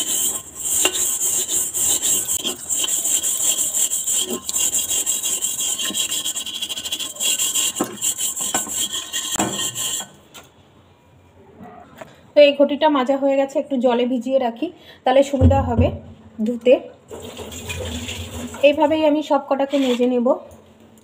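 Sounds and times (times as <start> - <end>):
scrubbing metal pot: 0.0 - 10.2, 17.1 - 19.1.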